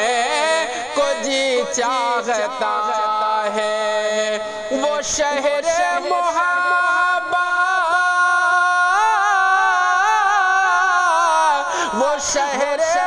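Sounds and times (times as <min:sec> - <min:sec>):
man singing devotional song: 0:00.0 - 0:13.0.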